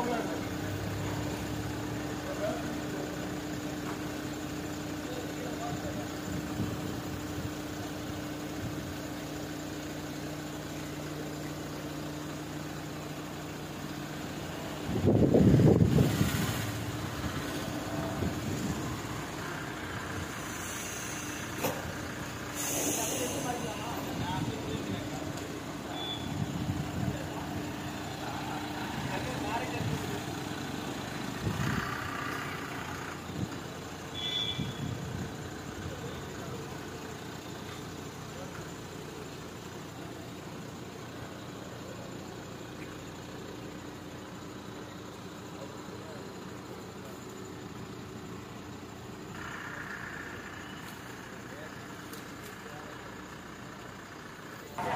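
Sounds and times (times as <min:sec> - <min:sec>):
diesel crane engine running: 0:00.0 - 0:54.9
hiss: 0:15.8 - 0:17.8, 0:18.8 - 0:24.4
short high beep: 0:25.9 - 0:26.5, 0:34.2 - 0:34.9.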